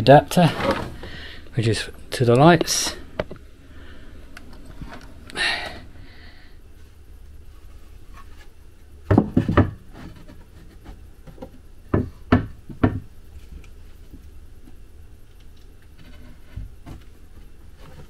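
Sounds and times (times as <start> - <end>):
wooden board knocking on timber: 11.9 - 13.0.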